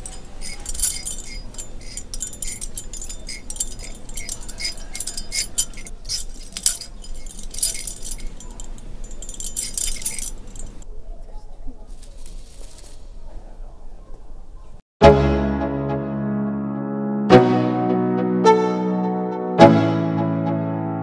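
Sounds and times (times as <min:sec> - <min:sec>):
metallic jangling and clinking: 0:00.0 - 0:10.9.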